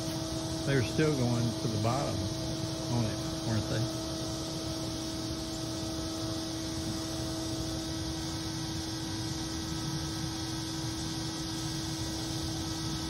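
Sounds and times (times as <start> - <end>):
vacuum motor hum: 0.0 - 13.0.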